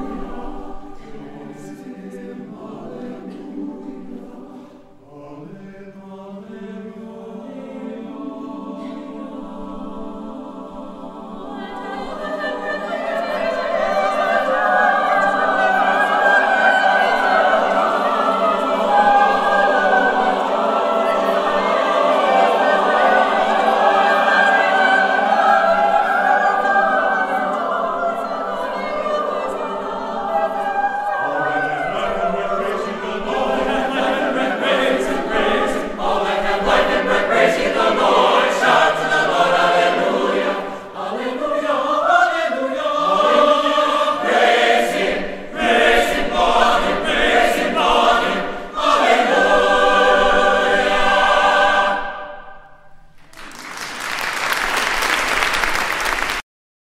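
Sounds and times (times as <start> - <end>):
choir singing a cappella: 0.0 - 53.1
applause: 53.2 - 56.4.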